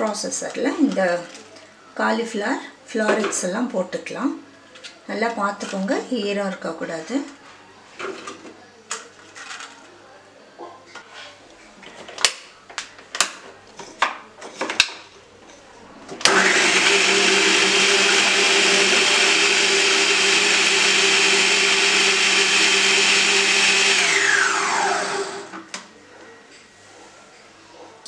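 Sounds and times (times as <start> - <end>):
food processor motor whining: 16.2 - 25.6.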